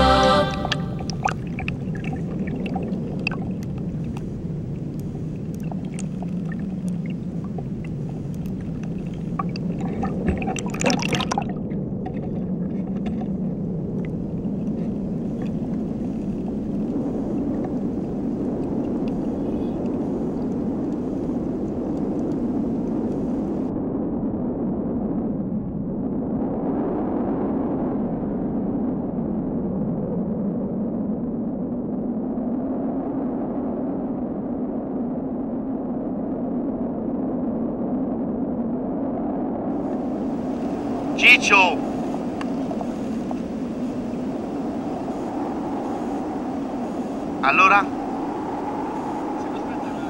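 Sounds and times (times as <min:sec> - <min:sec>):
underwater rush of water: 0:00.0 - 0:23.7, 0:39.7 - 0:50.0.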